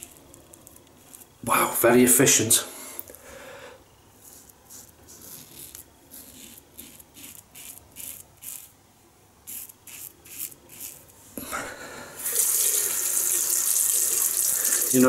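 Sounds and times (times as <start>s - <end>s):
razor scraping stubble: 0.0s - 1.4s, 4.2s - 8.8s, 9.4s - 11.1s
tap water running into sink: 12.3s - 15.0s.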